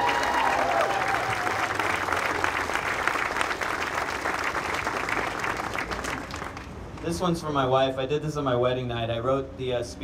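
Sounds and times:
crowd applauding: 0.0s - 6.7s.

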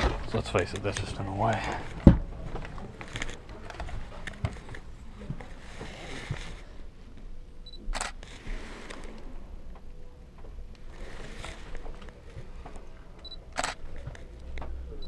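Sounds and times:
soft rustling: 0.4s - 7.2s
camera focus beep: 7.7s - 8.2s, 13.2s - 13.8s.

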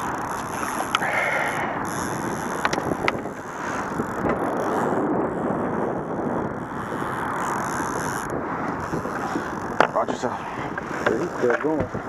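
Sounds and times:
wind buffeting microphone: 0.0s - 12.0s
sharp clicks: 0.1s - 1.1s, 1.9s - 3.3s.

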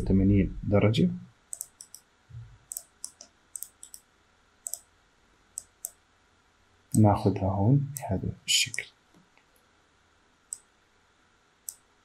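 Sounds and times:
mouse buttons clicking: 1.5s - 2.1s, 2.7s - 4.9s, 5.6s - 6.0s, 11.7s - 11.9s.

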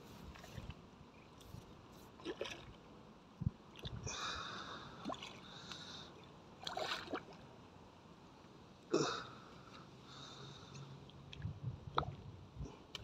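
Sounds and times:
fish splashing in water: 6.6s - 7.4s.

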